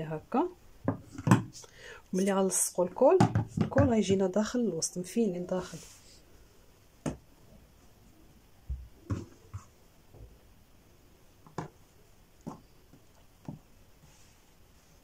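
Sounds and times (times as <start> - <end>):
taps and thumps on table: 0.8 - 1.6, 3.2 - 4.2, 7.0 - 7.2, 8.7 - 10.3.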